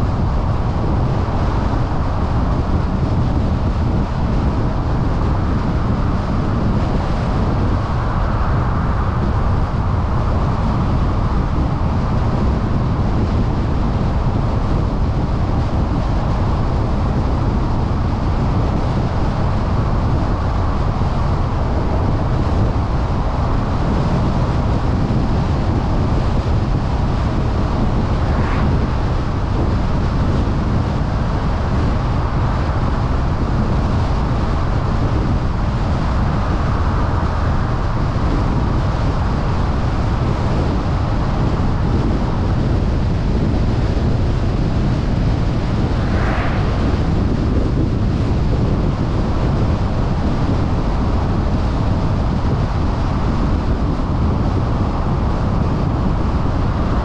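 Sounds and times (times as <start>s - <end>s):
car road and wind noise: 0.0s - 57.0s.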